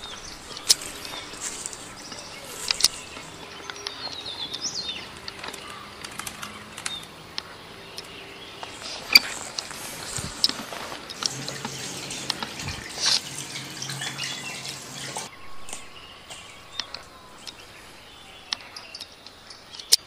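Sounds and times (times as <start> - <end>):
sharp clicks: 0.0 - 12.5
forest birds chirping: 0.0 - 20.0.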